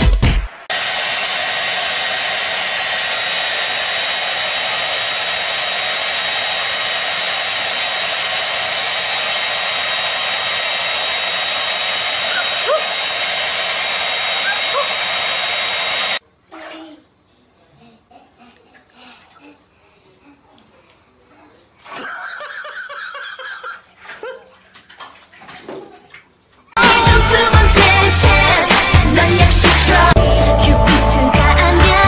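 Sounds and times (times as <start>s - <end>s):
hair dryer running: 0.7s - 16.2s, 26.8s - 30.4s.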